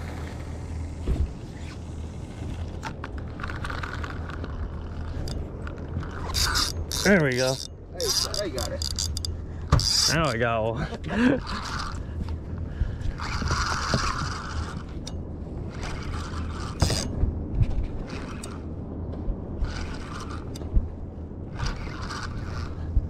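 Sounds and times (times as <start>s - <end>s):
steady low hum: 0.0s - 23.0s
fishing reel gears whirring: 2.4s - 10.4s, 11.1s - 18.7s, 19.6s - 20.8s, 21.5s - 23.0s.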